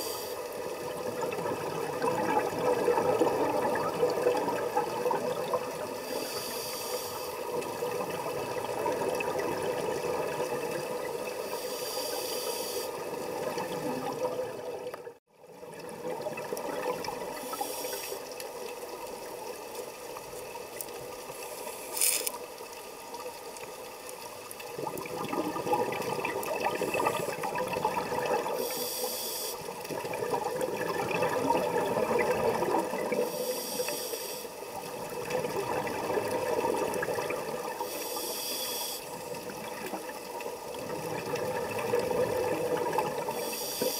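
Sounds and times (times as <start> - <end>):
regulator inhalation hiss: 0.0 - 0.6, 5.8 - 7.6, 11.4 - 13.1, 17.4 - 18.3, 28.6 - 29.7, 33.2 - 34.6, 37.8 - 39.3, 43.3 - 43.9
gurgling exhaled bubbles: 0.6 - 6.1, 7.4 - 11.4, 24.6 - 28.6, 29.8 - 33.3, 34.8 - 37.8, 39.2 - 43.4.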